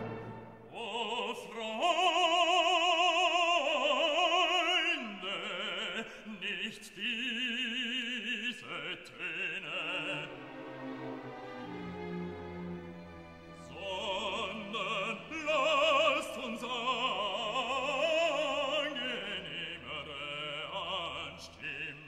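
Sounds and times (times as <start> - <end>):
backing music: 0.0 - 0.8
operatic singing: 0.0 - 22.0.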